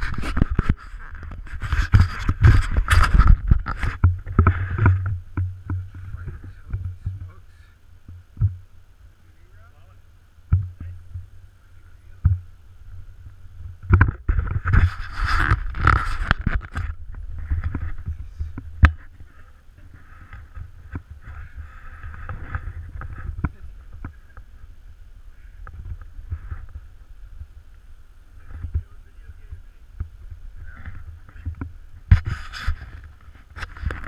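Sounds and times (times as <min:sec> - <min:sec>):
rustling handling noise: 0:10.6 - 0:34.0.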